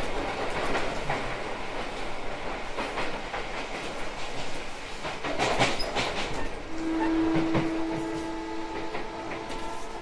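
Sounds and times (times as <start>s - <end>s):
wheels clicking over rail joints: 2.4s - 6.7s
electric train running: 6.3s - 10.0s.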